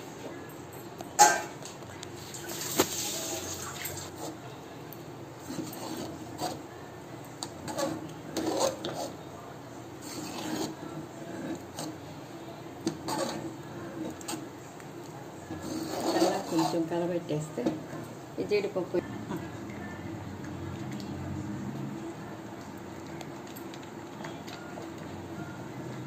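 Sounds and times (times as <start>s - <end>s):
ladle stirring liquid sloshing: 2.1s - 4.6s, 5.4s - 6.7s, 7.3s - 9.3s, 10.0s - 12.2s, 12.8s - 16.9s.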